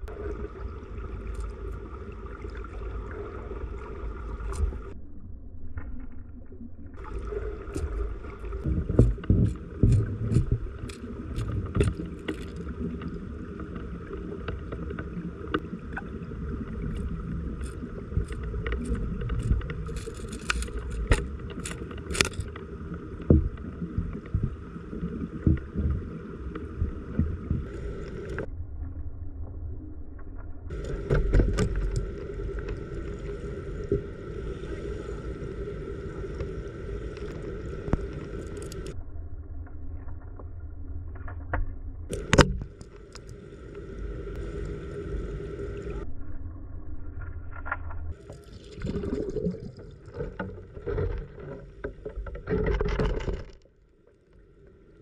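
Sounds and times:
muffled underwater stream rush: 0.0 - 55.0
sharp ticks and knocks: 8.6 - 12.6.

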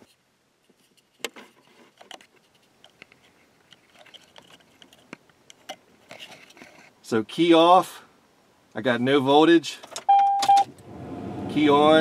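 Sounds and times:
small clicks and taps of handling: 0.7 - 6.9.

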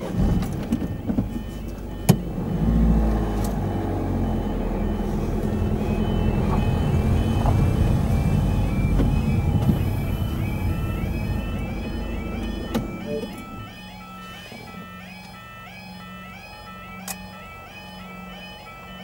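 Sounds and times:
vehicle engine and road noise: 0.0 - 19.0
warbling crossing alarm: 0.1 - 19.0.

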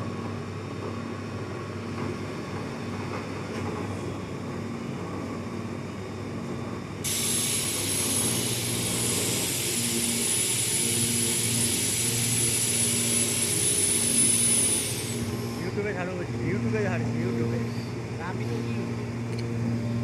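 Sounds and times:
compressed air hiss with whistle: 7.1 - 15.7
machine low drone and pulsing hum: 7.7 - 20.0.

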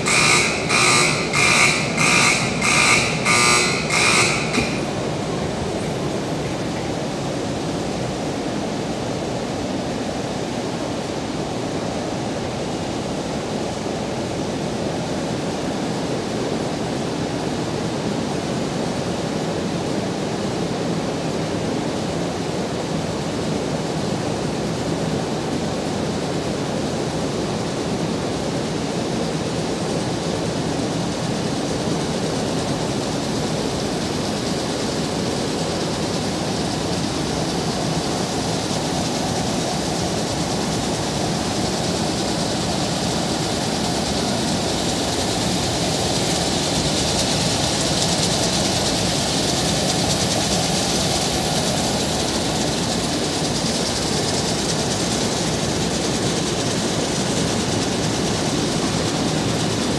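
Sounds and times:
industrial machinery hissing din: 0.0 - 8.9, 30.0 - 59.9.

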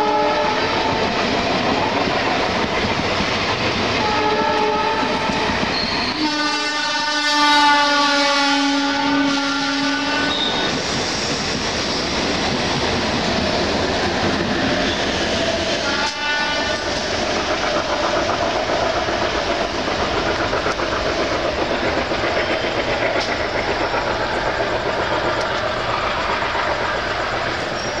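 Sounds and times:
rail clatter: 0.0 - 28.0
train rumbling on tracks: 0.0 - 28.0.

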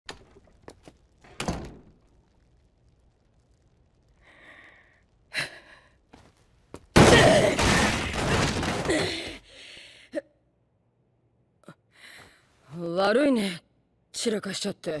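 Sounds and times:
wooden furniture crashing: 7.0 - 9.2.

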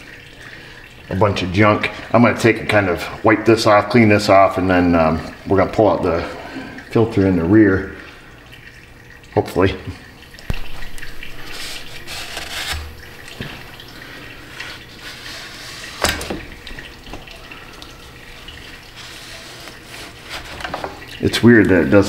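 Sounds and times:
sharp scrape: 11.3 - 12.9
rag rubbing on metal: 11.3 - 13.0, 14.5 - 16.5, 18.8 - 21.0.

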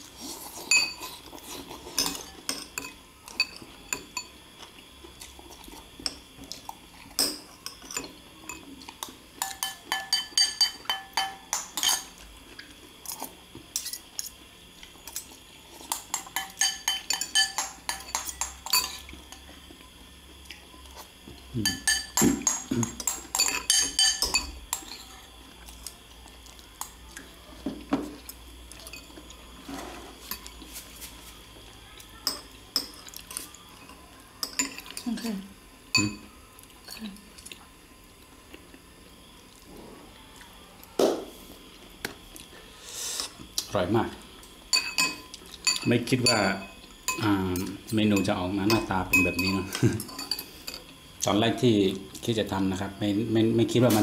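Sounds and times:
cutlery clinking on ceramic bowls: 0.6 - 1.2, 1.9 - 4.4, 7.0 - 12.2, 15.1 - 19.5, 21.6 - 25.1, 32.2 - 35.3, 35.9 - 36.2, 44.7 - 50.9.

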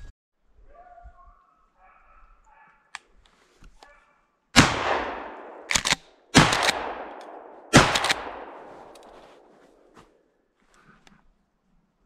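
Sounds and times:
shotgun shots ringing: 4.6 - 9.2
shotgun pump clacks: 5.7 - 9.2.

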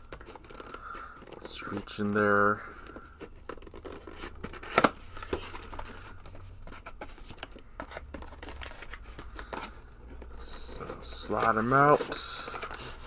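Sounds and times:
packaging crinkling and tapping: 2.9 - 10.3.

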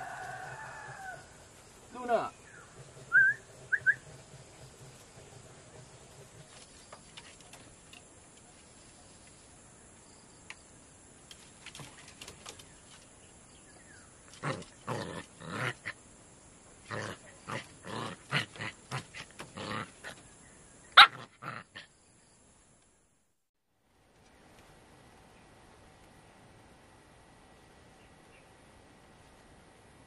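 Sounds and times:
puppy play-growling: 14.3 - 16.0, 16.8 - 20.2.

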